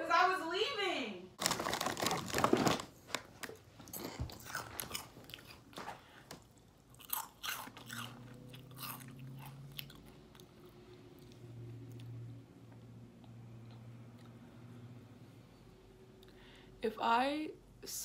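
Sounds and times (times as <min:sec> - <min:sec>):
crunchy snack chewing: 0:03.4 - 0:05.9, 0:06.8 - 0:10.5.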